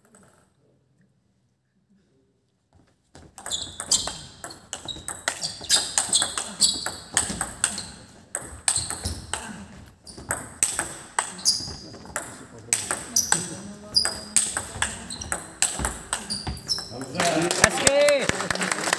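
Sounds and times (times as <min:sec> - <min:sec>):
table tennis ball clicking: 0:03.4 - 0:09.4, 0:10.2 - 0:17.2.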